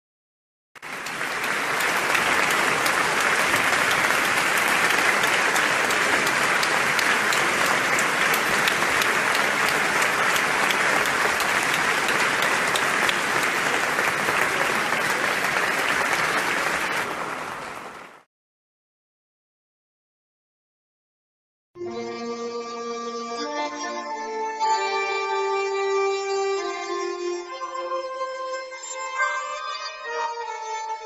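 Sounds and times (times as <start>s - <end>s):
audience applause: 0.8s - 18.3s.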